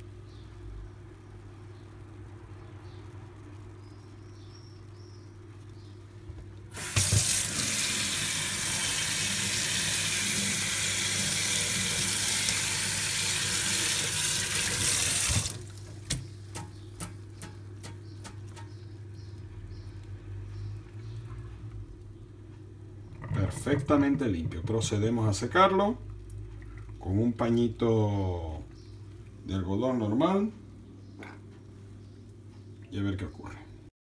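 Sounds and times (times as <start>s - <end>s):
tap water running into sink: 6.7s - 18.4s.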